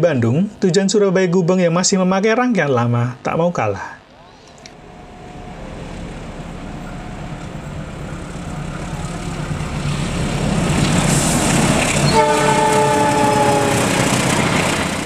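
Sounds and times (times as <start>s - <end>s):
locomotive rumble: 4.7s - 15.0s
train horn blast: 11.1s - 14.8s.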